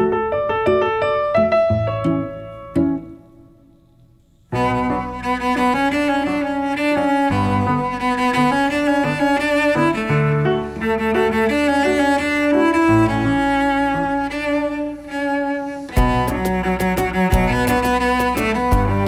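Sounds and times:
music with sustained notes: 0.0 - 19.0
steady percussive beat: 16.0 - 19.0.

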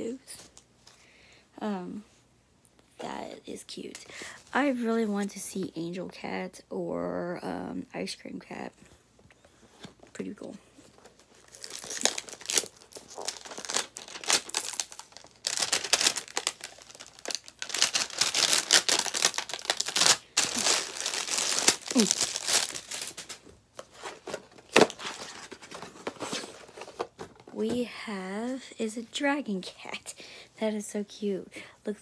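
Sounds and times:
plastic packaging crinkling: 10.8 - 27.5.

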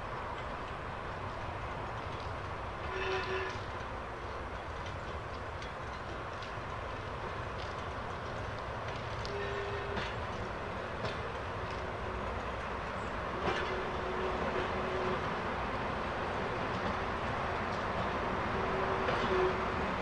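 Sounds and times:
diesel locomotive engine rumbling: 0.0 - 20.0
wheel clicks over rail joints: 0.3 - 13.8.

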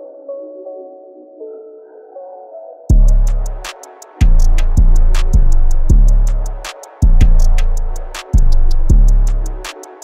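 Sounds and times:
deep bass: 2.9 - 9.7
hi-hat ticks: 2.9 - 10.0.

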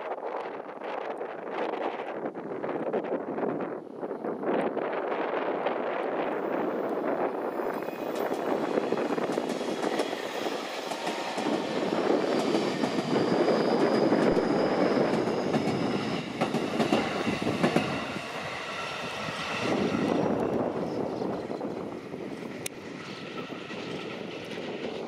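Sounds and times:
train wheels rumbling on rail: 0.3 - 25.0
faint high squeal: 7.3 - 9.2, 9.8 - 25.0.

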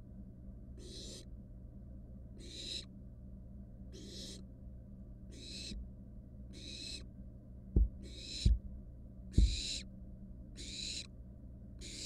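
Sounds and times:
low electrical hum: 0.0 - 12.0
owl nestlings rasping calls: 0.8 - 1.3, 2.4 - 2.9, 3.9 - 4.4, 5.3 - 5.8, 6.5 - 7.1, 8.0 - 8.6, 9.3 - 9.9, 10.6 - 11.1, 11.8 - 12.0
low thumps: 7.7 - 8.7, 9.4 - 9.6.

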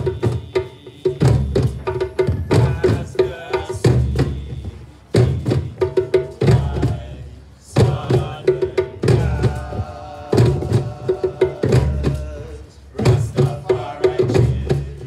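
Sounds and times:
hand drums drumming: 0.0 - 7.2
bass drum deep strokes: 1.2 - 15.0.

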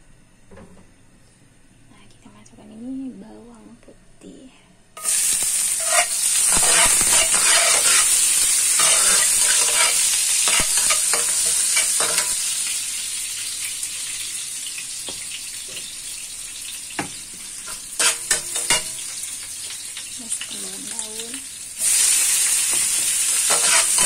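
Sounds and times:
metal spatula scraping pan: 5.0 - 12.4, 17.7 - 19.0, 22.7 - 24.0
garlic sizzling in oil: 5.0 - 24.0.

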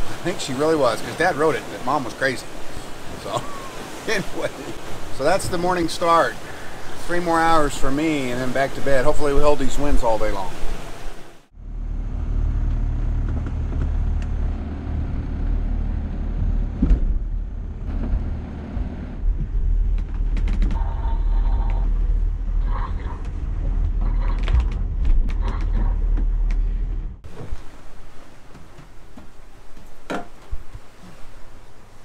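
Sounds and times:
hull rumbling through water: 0.0 - 32.0
boat interior creaks and clicks: 19.3 - 20.9, 22.7 - 31.2.

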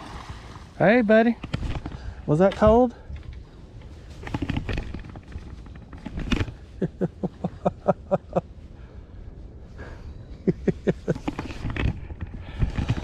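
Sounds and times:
man laughing: 6.8 - 8.5, 10.4 - 11.3.

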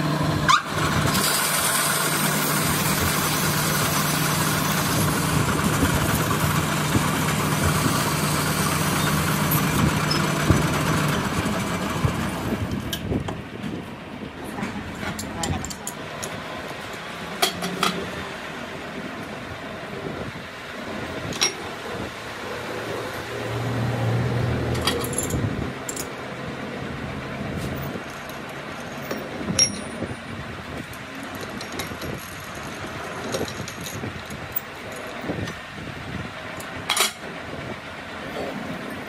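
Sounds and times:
workshop noise: 0.0 - 39.0
metal gear clinks: 28.2 - 30.1.

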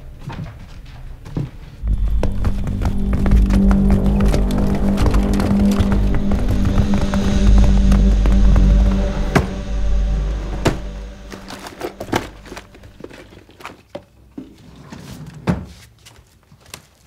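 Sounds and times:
tense music drone with thuds: 1.8 - 13.3.

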